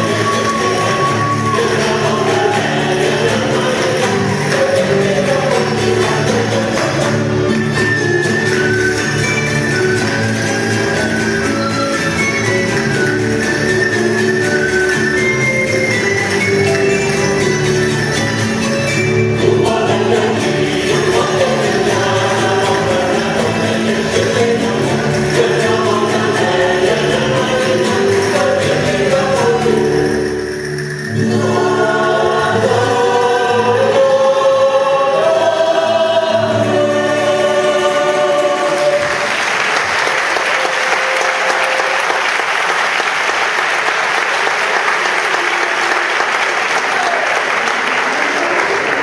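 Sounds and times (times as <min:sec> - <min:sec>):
audience applauding: 0:00.0 - 0:07.3, 0:38.3 - 0:49.0
music with group singing: 0:00.0 - 0:42.7.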